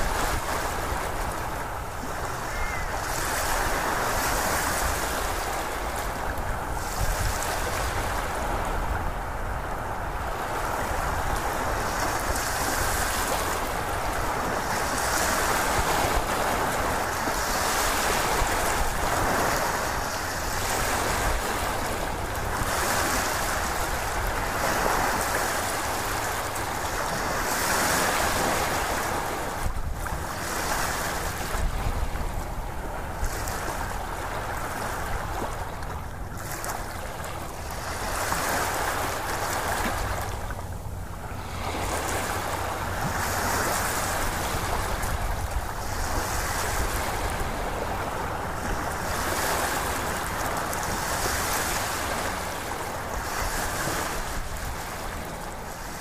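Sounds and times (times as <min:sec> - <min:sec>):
ocean waves rushing: 0:00.0 - 0:56.0.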